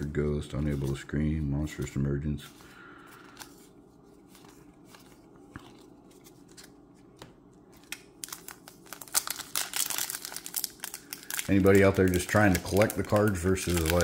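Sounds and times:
foil wrapper crinkling and tearing: 0:07.8 - 0:14.0.

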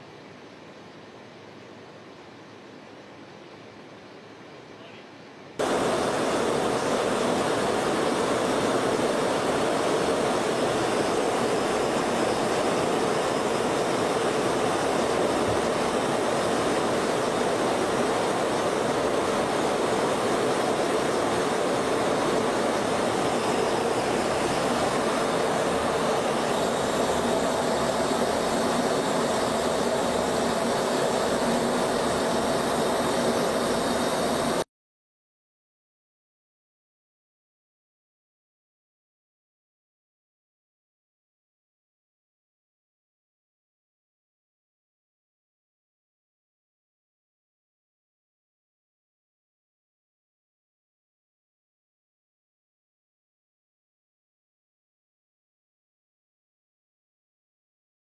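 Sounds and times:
jet aircraft roar: 0:05.6 - 0:34.6.

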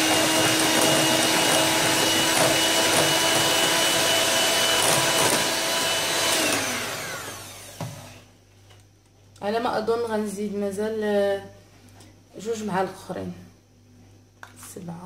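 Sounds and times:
electric hand mixer whisking: 0:00.0 - 0:08.3
mixer motor spinning down: 0:00.0 - 0:08.3.

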